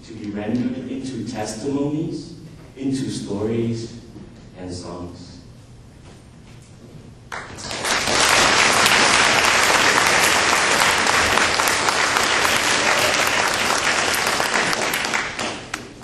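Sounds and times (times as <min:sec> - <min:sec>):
audience applauding: 0:07.3 - 0:16.0.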